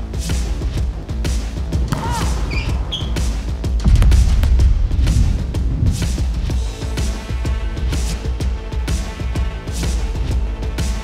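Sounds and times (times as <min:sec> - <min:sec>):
music with heavy bass beat: 0:00.0 - 0:11.0
shoe soles squeaking on court: 0:01.9 - 0:03.5.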